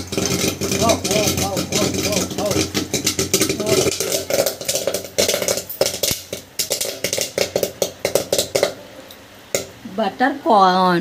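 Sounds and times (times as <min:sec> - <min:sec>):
popcorn popping in covered pan: 0:00.0 - 0:10.0.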